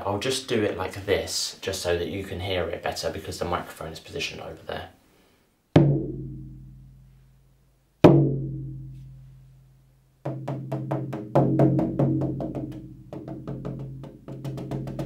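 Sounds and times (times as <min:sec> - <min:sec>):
frame drum beats: 0:05.8 - 0:07.2, 0:08.0 - 0:09.2, 0:10.2 - 0:15.0.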